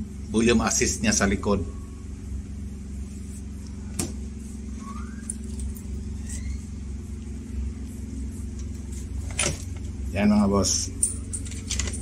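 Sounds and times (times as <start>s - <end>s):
low mechanical hum: 0.0s - 12.0s
faint rising chirps: 4.4s - 7.8s.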